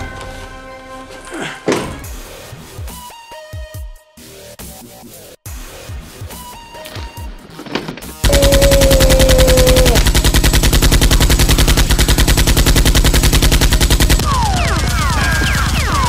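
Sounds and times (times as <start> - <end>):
falling whistles: 8.2 - 10.0
machine-gun fire: 8.2 - 16.0.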